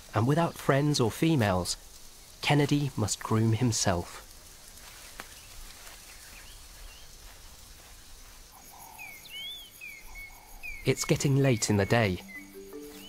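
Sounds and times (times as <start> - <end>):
pulsing insect trill: 0.0 - 13.0
steady hiss: 0.0 - 13.0
bird whistled calls: 9.0 - 13.0.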